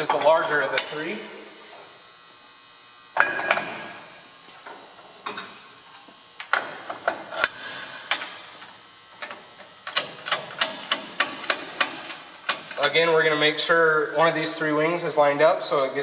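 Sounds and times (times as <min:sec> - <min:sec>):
metal parts clinking and knocking: 0:07.4 - 0:08.6
loud ringing metal clank: 0:07.4 - 0:08.7.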